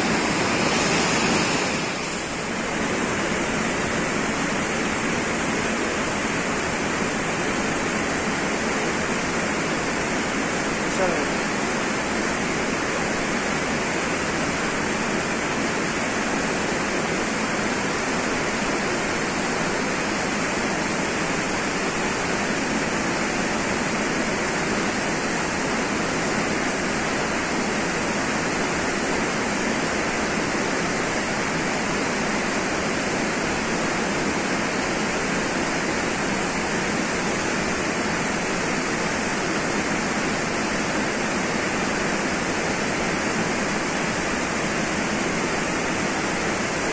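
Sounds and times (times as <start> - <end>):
small waterfall rushing: 0.0 - 46.9.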